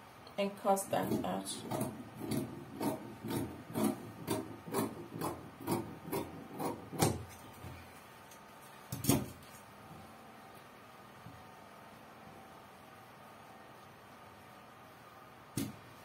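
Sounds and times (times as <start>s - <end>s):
scissors snipping fabric: 1.0s - 7.4s.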